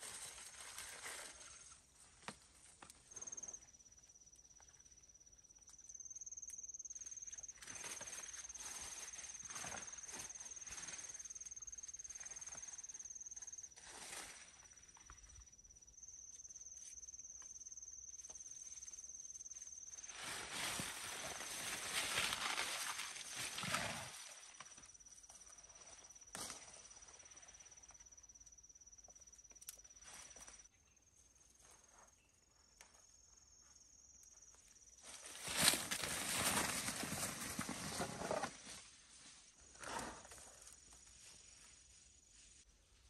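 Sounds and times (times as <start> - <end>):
rustling of leaves and stalks: 0.0 - 3.5, 7.1 - 15.2, 19.9 - 27.4, 35.0 - 43.0.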